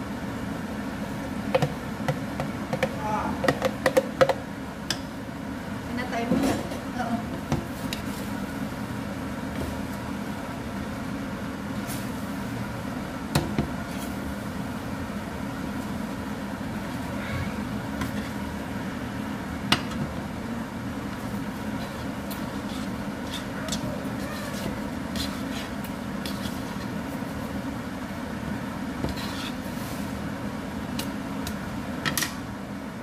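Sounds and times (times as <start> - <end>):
steady low hum: 0.0 - 33.0
spatula stirring noodles in pan: 21.0 - 30.3.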